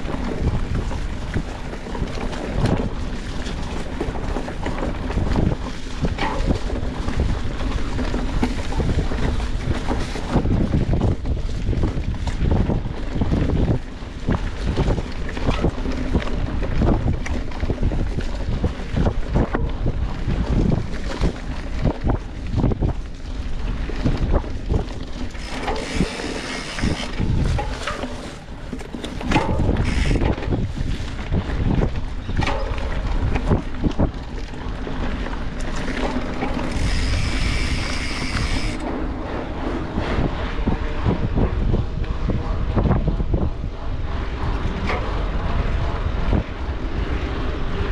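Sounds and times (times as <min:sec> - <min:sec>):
bike knocks and rattles: 0:00.0 - 0:43.5
steady low rumble: 0:00.0 - 0:47.9
wind buffeting microphone: 0:00.0 - 0:47.9
high steady whine: 0:25.3 - 0:30.7, 0:36.6 - 0:39.2.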